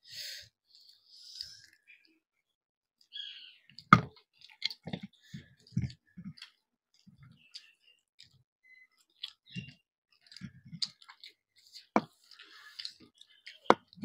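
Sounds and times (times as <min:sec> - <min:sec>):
chewing and mouth clicks: 0:03.7 - 0:14.0.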